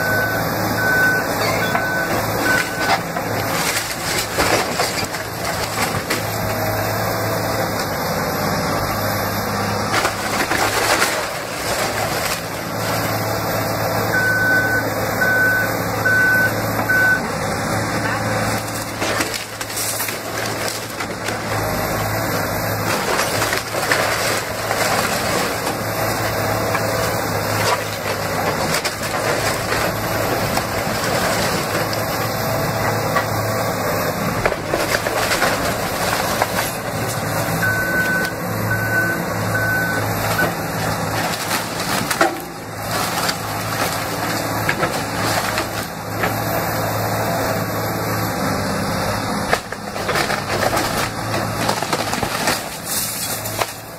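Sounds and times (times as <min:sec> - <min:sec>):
short beeps: 0:00.0 - 0:03.0, 0:14.1 - 0:17.3, 0:37.6 - 0:40.6
excavator diesel engine running: 0:00.0 - 0:53.9
debris crashing down: 0:01.0 - 0:06.8, 0:09.9 - 0:13.1, 0:18.4 - 0:33.4, 0:34.3 - 0:38.4, 0:40.2 - 0:46.4, 0:49.4 - 0:53.9
timber cracking and splintering: 0:01.7 - 0:07.9, 0:09.8 - 0:13.4, 0:18.1 - 0:38.3, 0:40.1 - 0:47.1, 0:48.6 - 0:53.9.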